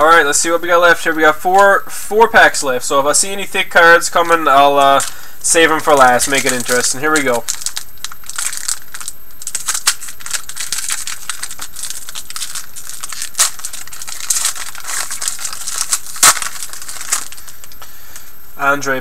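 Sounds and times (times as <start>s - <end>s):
wrapper crinkling and tearing: 4.7s - 18.3s
cards rustling and clicking: 4.8s - 18.3s.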